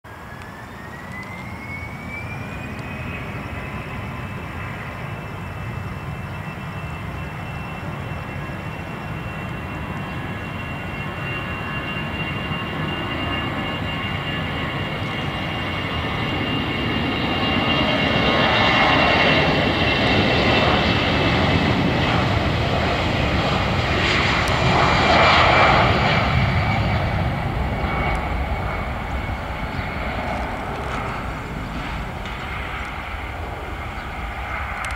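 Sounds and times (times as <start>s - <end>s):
jet fan whine rising: 0.1s - 6.1s, 13.4s - 34.9s
jet engine roar: 0.1s - 34.9s.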